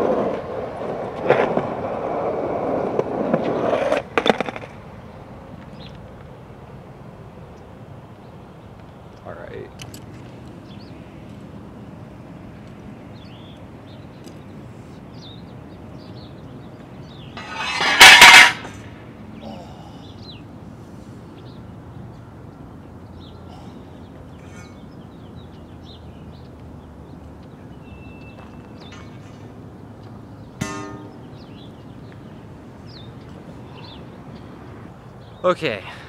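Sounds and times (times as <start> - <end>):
outdoor background: 0.0 - 36.0
scraping clatter on concrete: 2.9 - 4.8, 17.4 - 18.9.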